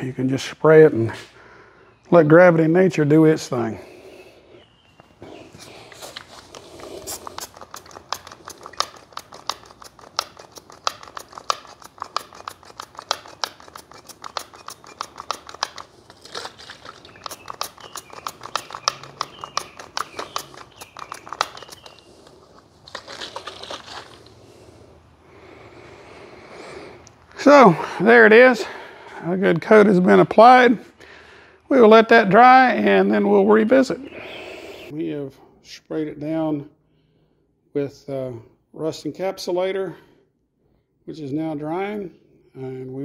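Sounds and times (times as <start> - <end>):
trigger sprayer squirting: 5.9 - 24.4.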